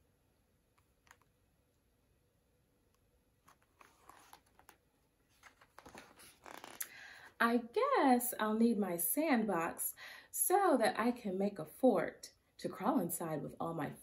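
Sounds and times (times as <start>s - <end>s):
paper pages rustling and turning: 3.4s - 6.8s.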